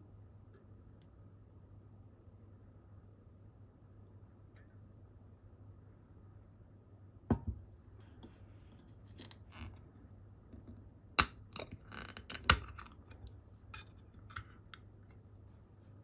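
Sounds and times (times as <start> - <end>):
can knocking on wooden table: 7.3 - 7.6.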